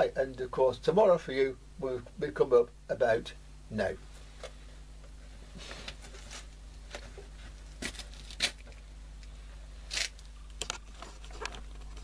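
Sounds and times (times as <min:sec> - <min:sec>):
low electrical hum: 0:00.0 - 0:12.0
rustles and clicks of handling: 0:04.1 - 0:12.0.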